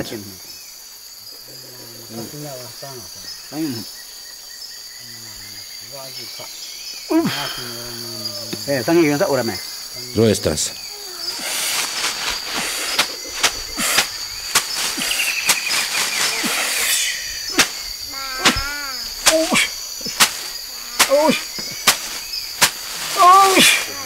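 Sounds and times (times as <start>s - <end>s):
crickets chirring: 0.0s - 24.0s
short rising and falling calls: 10.8s - 22.2s.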